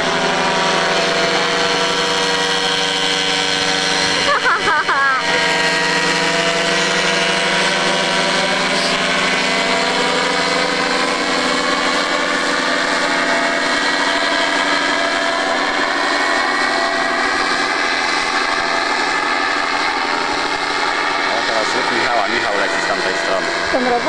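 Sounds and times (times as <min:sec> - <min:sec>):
paramotor engine drone: 0:00.0 - 0:24.0.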